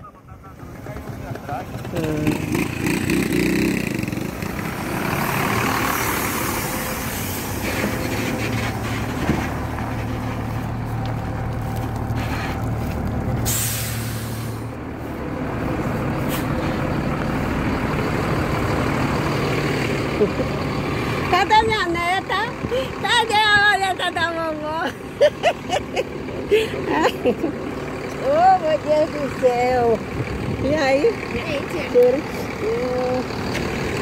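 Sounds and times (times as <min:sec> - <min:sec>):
diesel coach idling: 0:00.0 - 0:34.0
pneumatic air hiss: 0:13.4 - 0:14.7.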